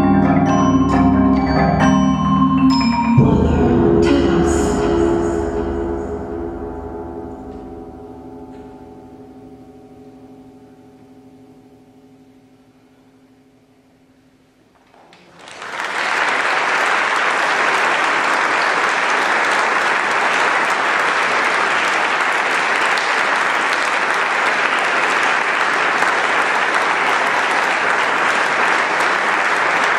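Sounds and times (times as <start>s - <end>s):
audience applauding: 14.9s - 29.9s.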